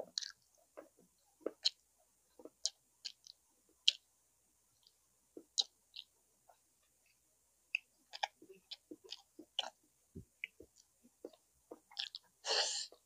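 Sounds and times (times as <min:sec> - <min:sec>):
wet chewing and mouth smacks: 0:00.1 - 0:01.8, 0:02.4 - 0:04.0, 0:04.8 - 0:06.1, 0:07.7 - 0:12.3.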